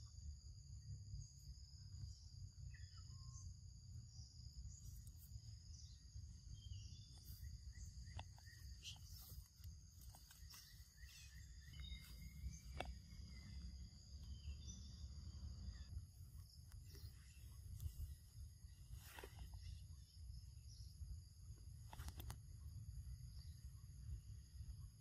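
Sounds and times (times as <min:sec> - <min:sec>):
insects droning: 0:00.0 - 0:25.0
soft clicks and rustles: 0:07.2 - 0:13.2, 0:21.8 - 0:22.6.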